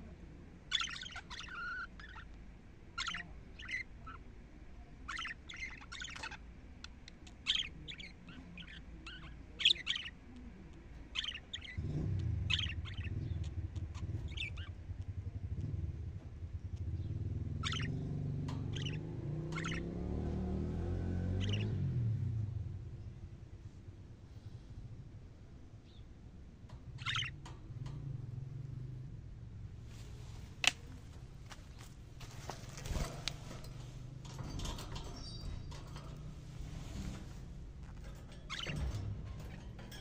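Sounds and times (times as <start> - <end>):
budgerigars chirping: 0.7 - 4.3, 5.0 - 10.4, 11.0 - 14.8, 16.8 - 20.3, 21.4 - 21.8, 26.8 - 27.5, 31.7 - 40.0
vehicle engine hum: 7.0 - 40.0.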